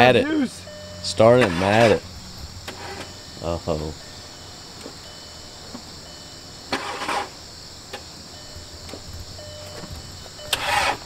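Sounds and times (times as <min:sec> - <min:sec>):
car starter burst: 0:00.6 - 0:03.4, 0:06.6 - 0:07.5, 0:09.2 - 0:11.0.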